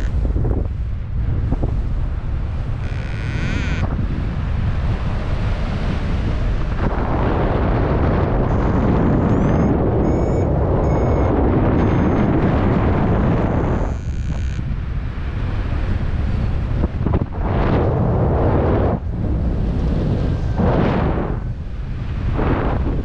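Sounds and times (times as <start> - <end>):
wind rushing over microphone: 0.0 - 23.0
variometer tone and beeps: 8.5 - 12.6, 13.7 - 14.6.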